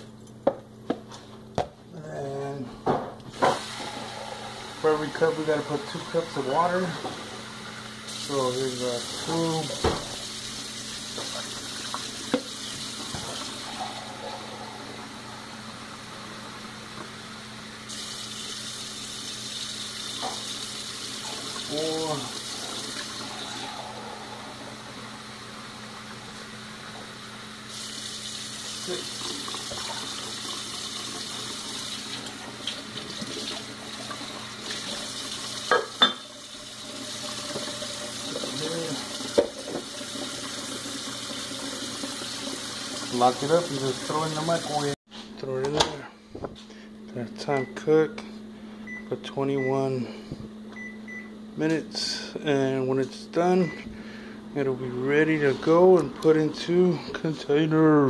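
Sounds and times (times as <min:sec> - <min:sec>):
faucet running into cup: 0:03.4 - 0:15.0, 0:17.9 - 0:24.9, 0:27.7 - 0:44.9.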